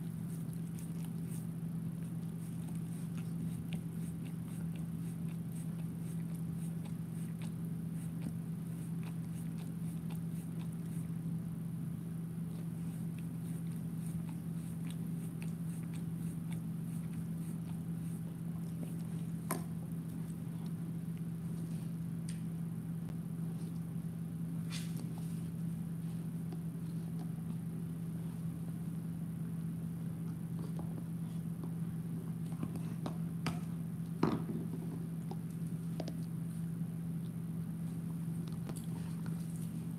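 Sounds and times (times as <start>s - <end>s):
dog gnawing on chew bone: 0.0s - 11.4s, 12.4s - 22.4s, 30.3s - 39.9s.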